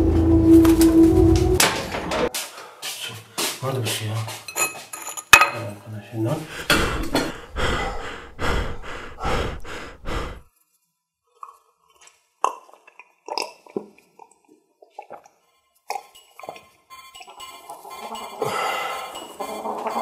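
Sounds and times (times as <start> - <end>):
dishes and cutlery clattering: 4.4 - 5.8
man gulping a drink: 11.4 - 16.6.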